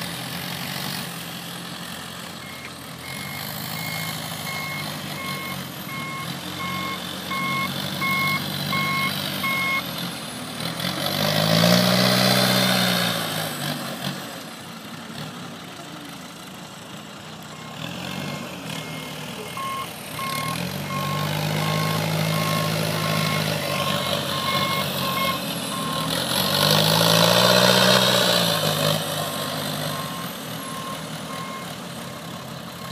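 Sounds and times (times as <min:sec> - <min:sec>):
forklift engines revving: 0:00.0 - 0:32.9
backup alarm beeping: 0:02.4 - 0:09.8, 0:18.9 - 0:26.1.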